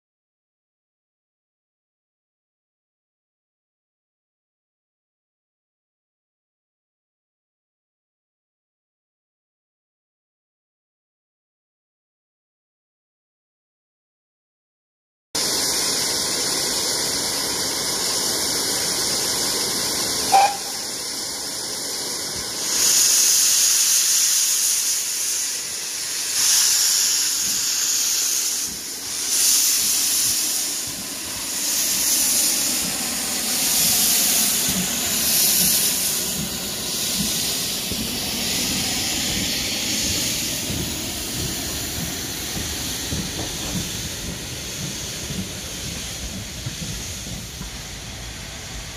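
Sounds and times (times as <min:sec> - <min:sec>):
steam locomotive hissing steam: 0:15.4 - 0:48.9
brief sharp sound: 0:20.3 - 0:20.9.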